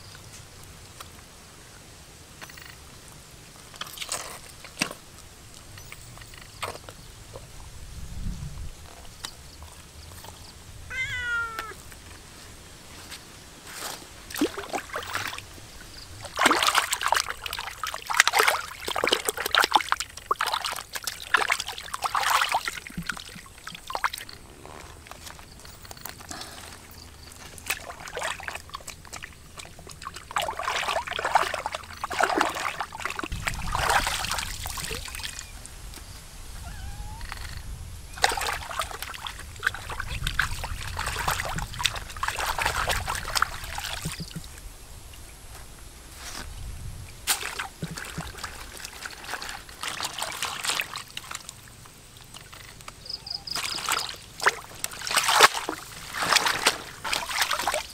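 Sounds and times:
hands splashing in water: 14.3 - 15.5, 16.2 - 24.4, 27.5 - 35.4, 38.2 - 44.5, 47.3 - 51.6, 53.5 - 57.9.

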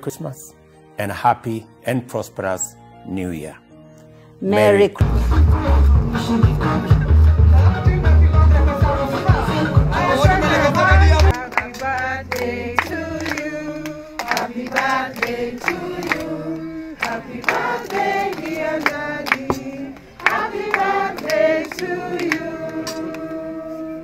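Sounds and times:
choir singing: 8.0 - 24.0.

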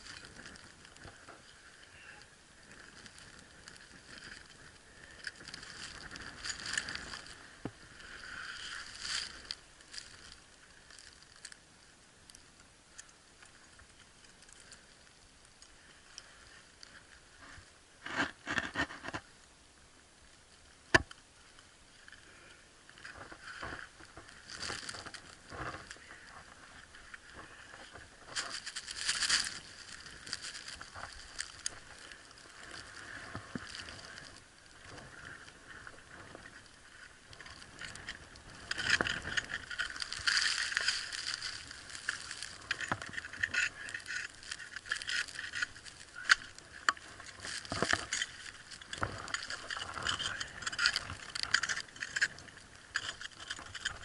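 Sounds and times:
ice tools scraping and chipping ice: 37.4 - 54.0.

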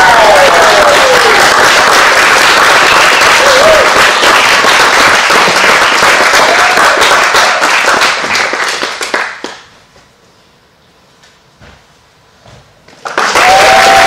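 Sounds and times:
audience applauding: 0.0 - 9.7, 13.0 - 14.0.

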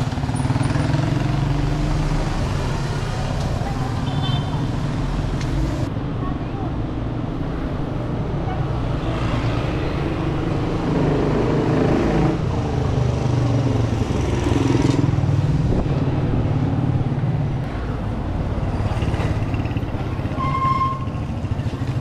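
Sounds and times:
motorcycle engines humming: 0.0 - 5.9.

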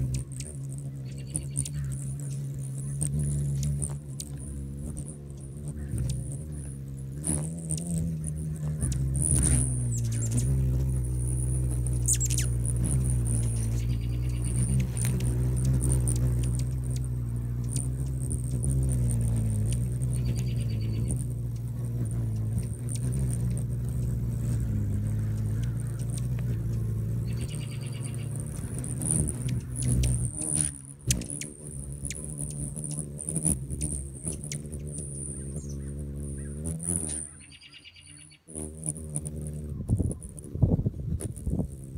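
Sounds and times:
hummingbird wingbeats humming: 0.0 - 41.9
high twittering chirps: 0.1 - 4.5, 7.7 - 18.2, 20.0 - 21.8, 27.2 - 33.1, 33.8 - 38.5.

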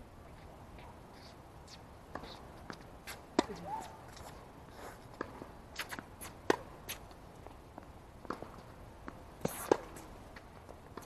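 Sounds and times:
tennis ball bouncing: 2.1 - 4.2, 5.2 - 7.1, 7.8 - 11.0
racket hitting tennis ball: 2.1 - 4.3, 5.2 - 7.0, 8.3 - 10.1.

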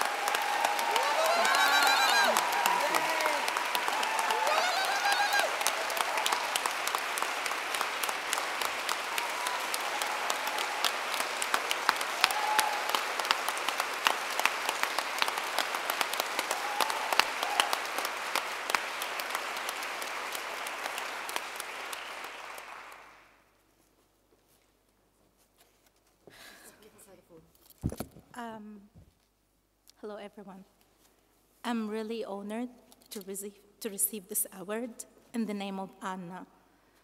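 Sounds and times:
audience applause: 0.0 - 23.4.

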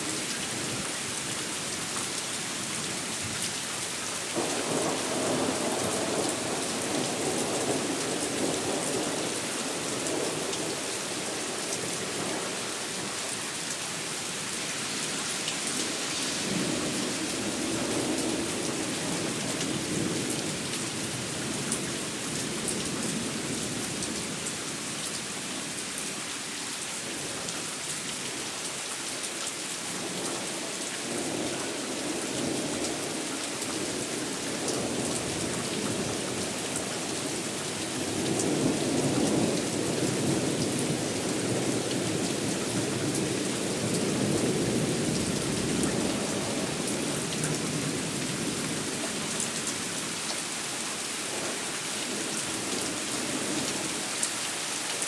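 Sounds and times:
rain hissing: 2.8 - 21.6.

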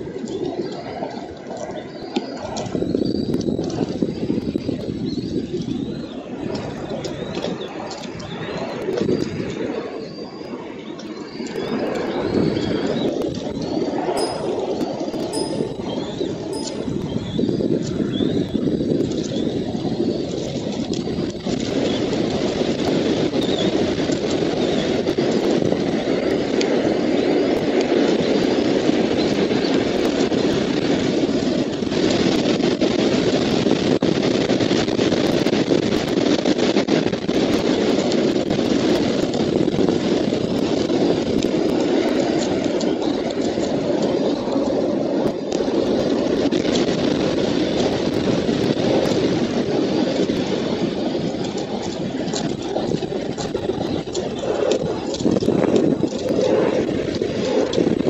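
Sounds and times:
steady rushing noise: 0.0 - 58.0.

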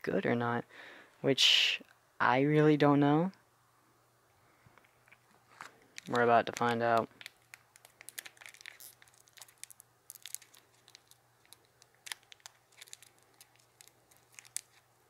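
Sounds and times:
candy wrapper crinkling: 5.0 - 15.0.

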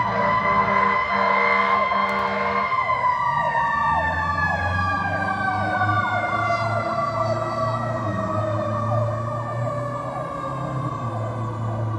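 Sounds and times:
siren rapid sweeps: 0.0 - 11.9
siren steady wail: 0.0 - 11.9
truck engine rumble: 0.0 - 11.9.

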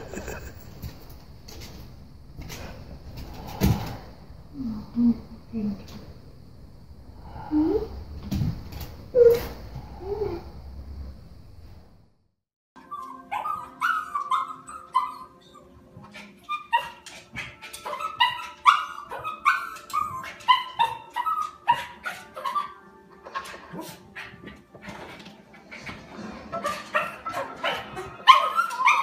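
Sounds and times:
dog barking: 26.6 - 29.0.

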